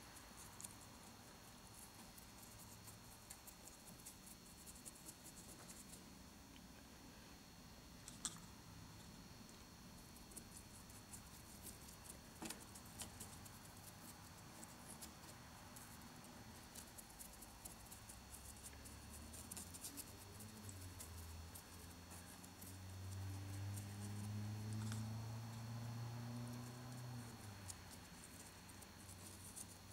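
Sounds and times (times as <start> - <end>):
faint high whine: 0.0 - 29.9
paintbrush dabbing on rock: 10.0 - 25.8.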